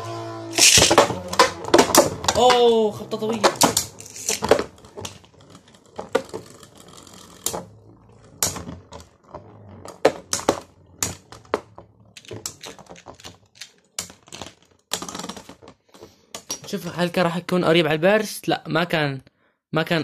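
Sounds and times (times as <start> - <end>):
spinning tops clacking: 0.6 - 2.7, 3.3 - 7.7.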